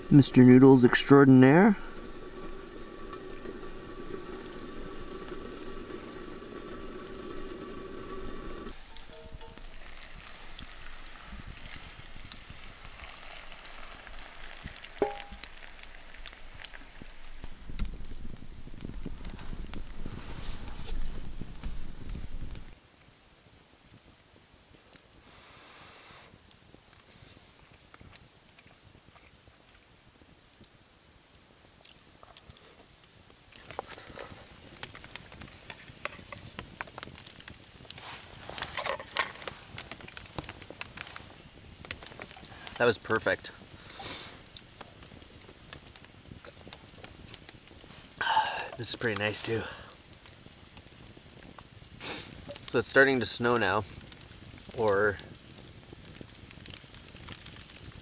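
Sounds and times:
hot water pouring into bowl: 0.0 - 22.8, 33.5 - 58.0
rustling: 0.0 - 22.8, 33.5 - 48.2
embers crackling: 0.0 - 58.0
metallic clink: 15.0 - 15.4.

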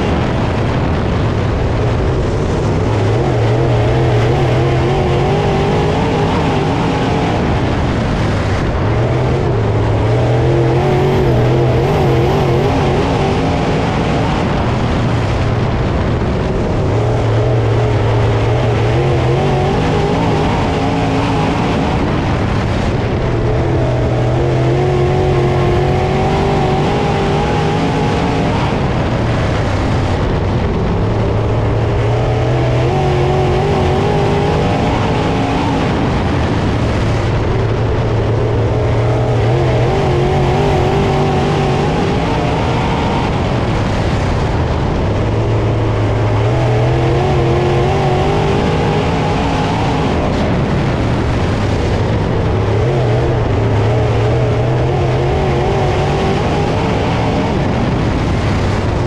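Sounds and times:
race car engine at full throttle: 0.0 - 59.0
road and wind rush: 0.0 - 59.0.

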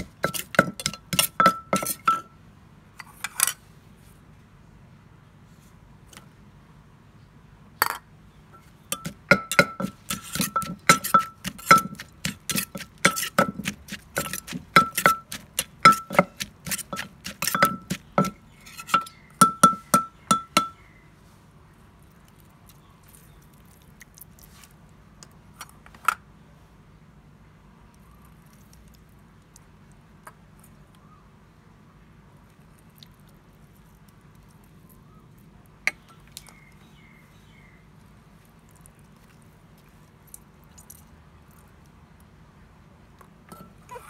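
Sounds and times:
wooden pestle pounding in mortar: 0.0 - 2.2, 8.9 - 20.8
metal spoon clinking on pot: 0.0 - 2.3, 8.6 - 20.8, 43.5 - 44.0.

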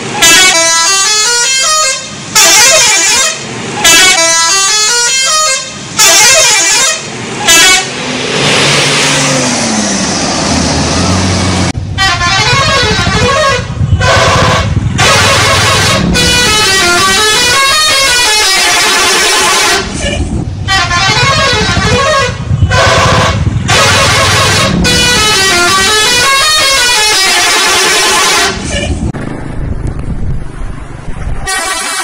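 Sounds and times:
air horns playing a tune: 0.2 - 8.0, 12.0 - 29.0, 31.4 - 32.0.

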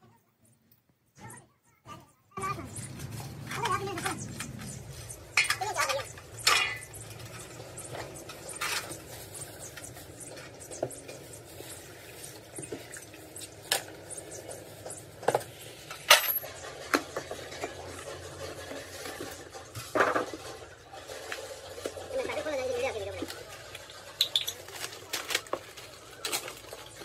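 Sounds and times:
metal tools and parts clinking: 3.0 - 9.9, 15.9 - 16.6.

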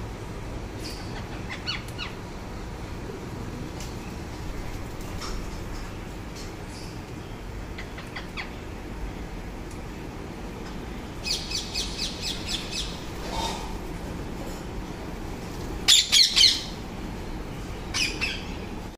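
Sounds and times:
parakeet squawking: 15.9 - 16.8.

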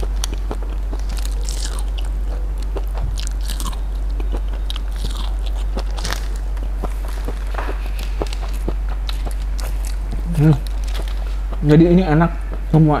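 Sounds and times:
person chewing food: 0.0 - 11.8
steady low hum: 0.0 - 13.0.

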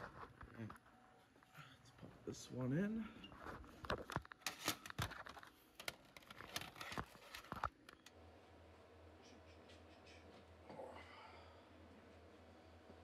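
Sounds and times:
objects handled near microphone: 3.3 - 8.1
faint low hum: 5.7 - 13.0.

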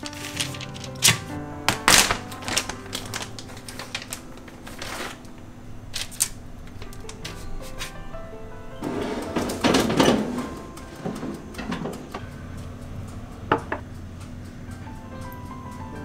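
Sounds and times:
baking tray scraping and rattling: 0.0 - 1.3, 2.3 - 5.3, 8.8 - 12.3
background music: 0.0 - 16.0.

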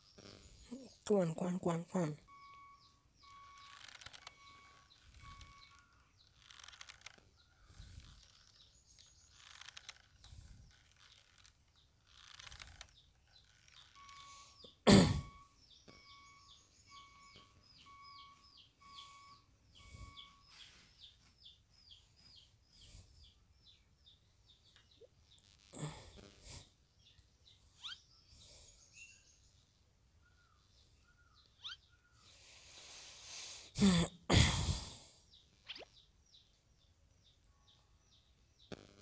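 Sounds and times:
short electronic beeps: 2.0 - 7.0, 13.8 - 20.9.

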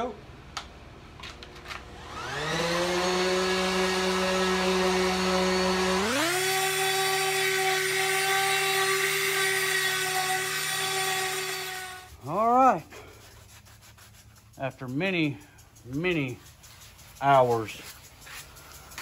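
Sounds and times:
orbital sander whining on wood: 2.0 - 12.7.

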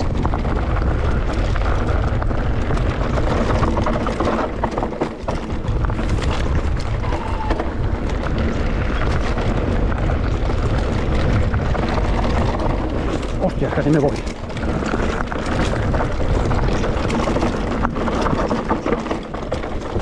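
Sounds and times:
bike rattling: 0.0 - 20.0
tyres crunching over stones: 0.0 - 20.0
wind buffeting microphone: 0.0 - 20.0
steady low rumble: 5.4 - 18.1.

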